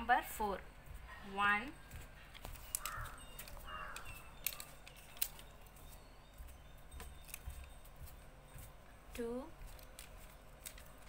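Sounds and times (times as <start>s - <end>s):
stickers peeled and pressed on card: 2.4s - 5.5s
harsh bird calls: 2.6s - 5.6s.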